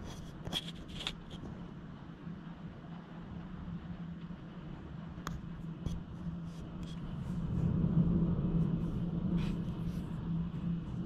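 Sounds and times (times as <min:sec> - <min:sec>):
distant thunder rumble: 0:07.0 - 0:11.0.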